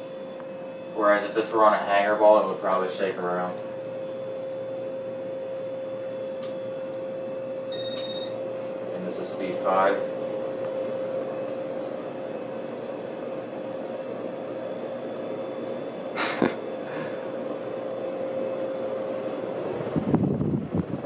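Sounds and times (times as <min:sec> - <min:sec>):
ceiling fan motor hum: 0:00.0 - 0:21.0
air rushing off fan blades: 0:08.4 - 0:21.0.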